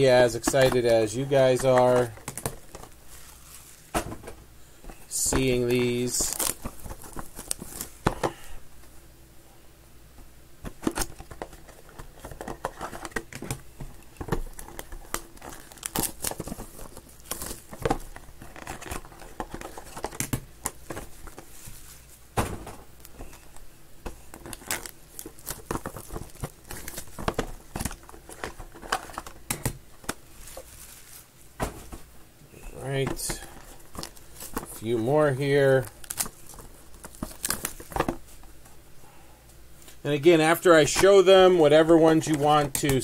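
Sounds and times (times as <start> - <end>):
plastic wrap crinkling and tearing: 0.0 - 3.9, 5.0 - 8.1, 10.8 - 22.1, 24.2 - 31.3, 32.8 - 38.5
cards and cardboard rustling: 0.0 - 8.6, 10.6 - 38.8, 39.8 - 43.0.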